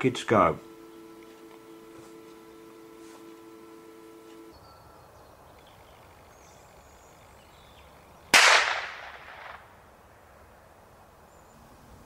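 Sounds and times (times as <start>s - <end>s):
rifle shot with echo: 8.3s - 9.7s.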